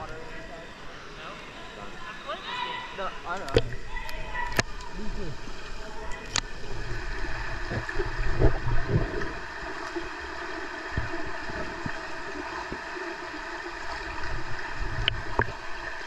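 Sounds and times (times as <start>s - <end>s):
muffled underwater rush: 0.0s - 16.0s
low underwater thumps: 3.3s - 5.4s, 6.4s - 10.1s, 10.8s - 12.9s
faint clicks: 6.1s - 6.6s.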